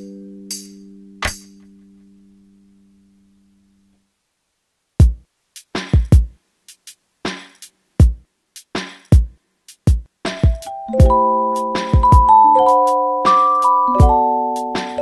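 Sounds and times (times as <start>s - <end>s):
snare hits: 1.2s - 1.7s
kick drum thumps: 5.0s - 5.2s, 5.9s - 6.4s, 8.0s - 8.2s, 9.2s - 11.2s, 11.9s - 12.3s.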